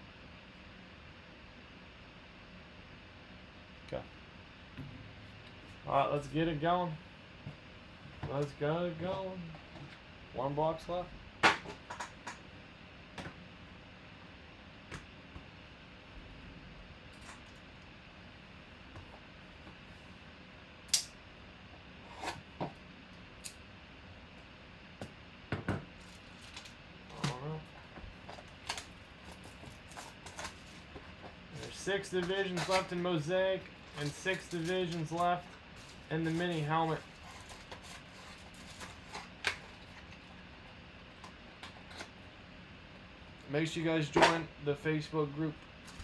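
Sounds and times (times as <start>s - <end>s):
card packs rustling being opened: 26.0s - 40.4s.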